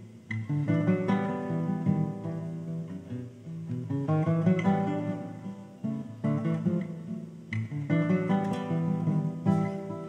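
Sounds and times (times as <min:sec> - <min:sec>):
classical guitar fingerstyle: 0:00.0 - 0:10.0.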